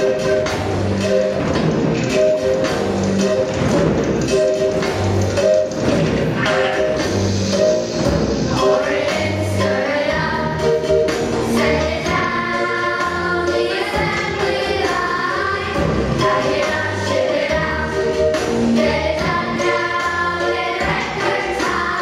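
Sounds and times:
instrumental accompaniment with beat: 0.0s - 22.0s
children's choir singing: 4.8s - 22.0s.

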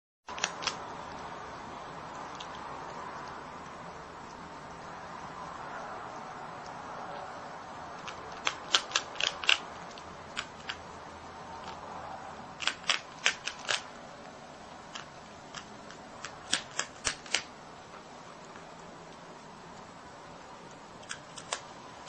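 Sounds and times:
animal crunching a cracker: 0.3s - 0.8s, 7.9s - 10.8s, 12.6s - 14.0s, 14.8s - 17.5s, 21.0s - 21.7s.

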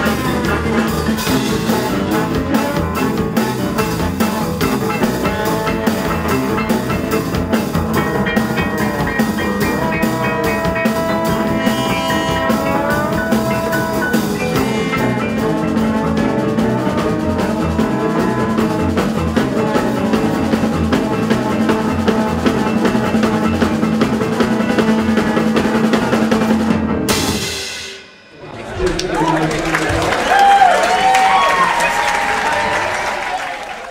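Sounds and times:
french horn: 0.0s - 23.8s
trombone: 0.0s - 28.0s
bass guitar: 0.0s - 28.1s
drum kit beat: 0.0s - 28.4s.

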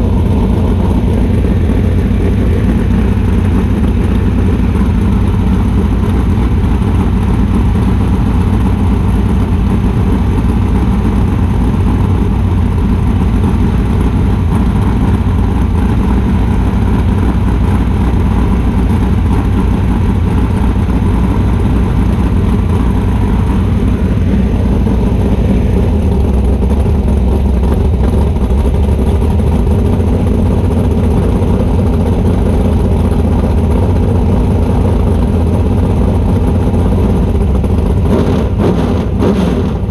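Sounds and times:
buggy engine idling: 0.0s - 39.9s.

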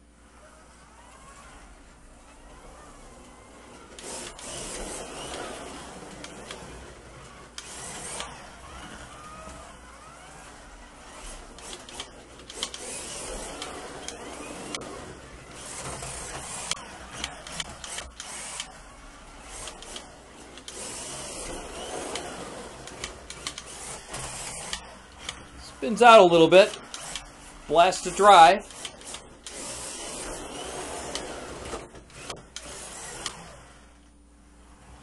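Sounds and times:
slot car motor whining: 0.0s - 35.0s
slot car wheels rattling: 3.1s - 33.6s
sharp clicks and knocks: 22.1s - 25.5s.

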